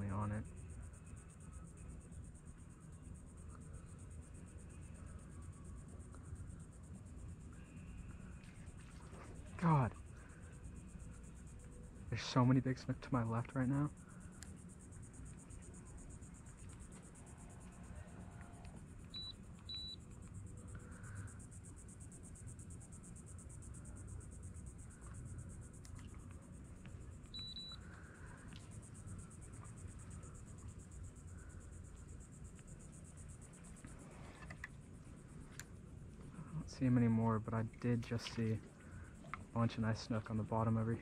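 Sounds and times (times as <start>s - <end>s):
faint outdoor background noise: 0.0s - 41.0s
short high-pitched beeps: 19.1s - 20.0s, 27.3s - 27.8s.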